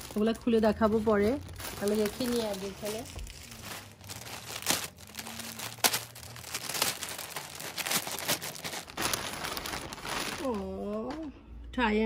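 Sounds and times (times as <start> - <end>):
plastic bag crinkling: 0.0 - 11.3.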